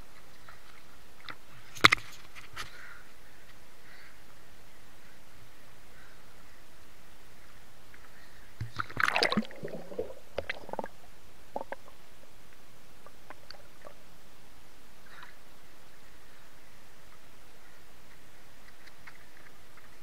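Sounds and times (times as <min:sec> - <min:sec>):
underwater bubbling: 0:08.6 - 0:14.2.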